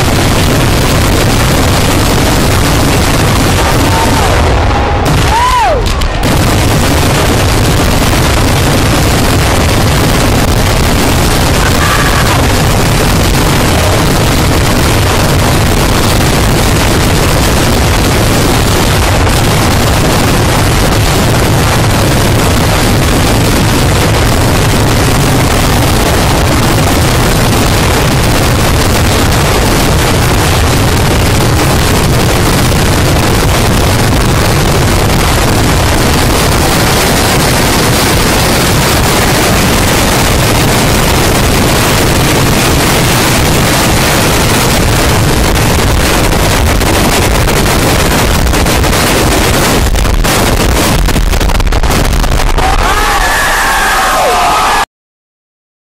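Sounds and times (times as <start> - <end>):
fireworks exploding rapidly: 0.0 - 54.8
firework whistle: 3.5 - 14.2.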